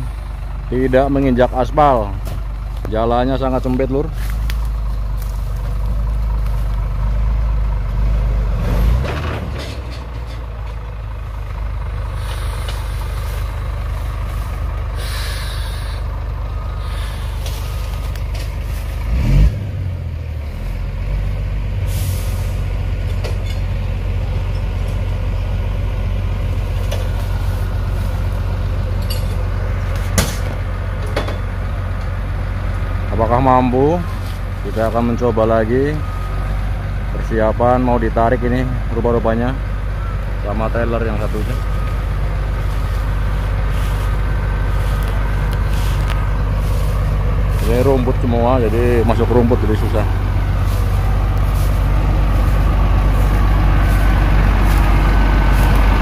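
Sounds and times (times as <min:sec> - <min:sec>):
diesel truck engine running: 0:00.0 - 0:56.0
air hissing: 0:12.2 - 0:13.4, 0:14.9 - 0:16.1, 0:16.8 - 0:17.9, 0:21.9 - 0:22.6.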